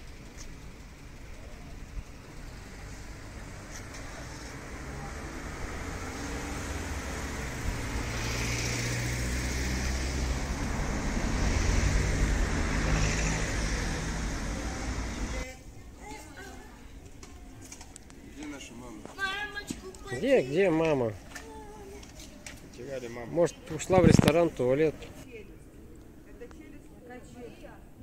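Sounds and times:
vehicle passing by: 0.1s - 15.5s.

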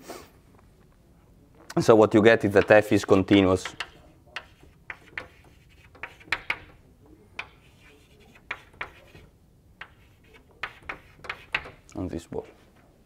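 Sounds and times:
chalk tapping and scratching on board: 2.5s - 11.9s.

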